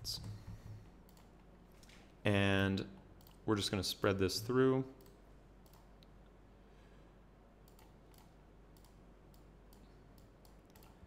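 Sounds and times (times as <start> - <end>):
low room hum: 0.0 - 11.0
computer mouse clicks: 0.2 - 2.0, 3.2 - 3.4, 5.0 - 6.1, 7.6 - 11.0.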